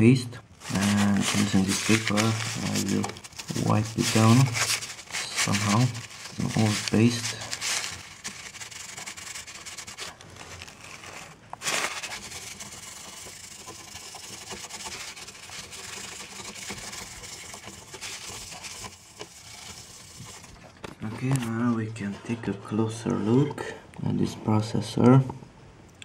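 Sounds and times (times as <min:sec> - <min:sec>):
paper rustling: 0:00.5 - 0:22.0
paper scrubbing metal: 0:00.6 - 0:21.8.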